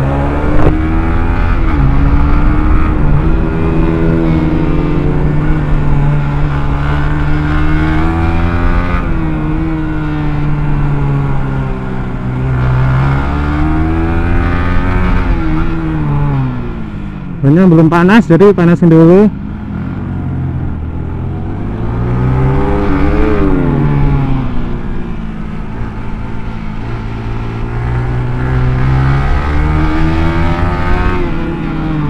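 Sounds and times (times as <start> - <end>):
motorcycle engine revving: 0.0 - 32.0.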